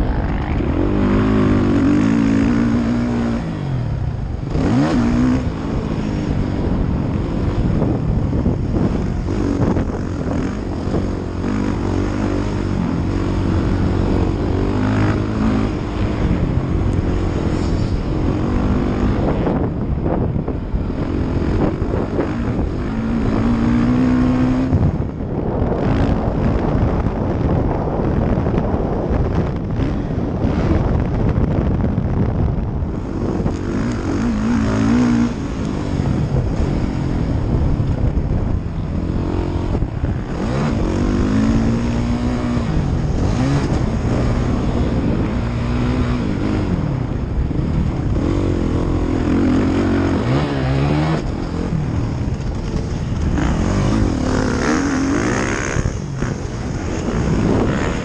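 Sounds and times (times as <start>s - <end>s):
dirt bike engine revving: 0.0s - 27.3s, 32.9s - 58.0s.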